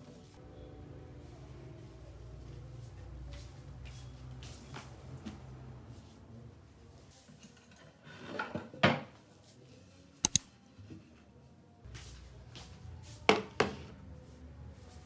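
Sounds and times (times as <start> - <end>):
sharp clicks: 10.2 - 10.4.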